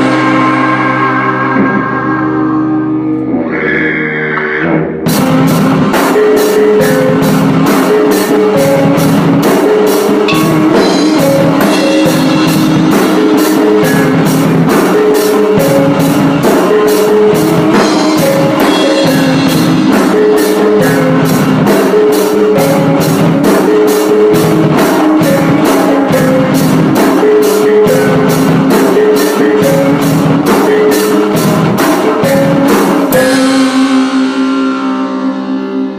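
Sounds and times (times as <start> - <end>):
live band music: 0.0 - 35.9
fast drum beat: 5.1 - 34.5
sustained chord ringing: 10.2 - 14.6.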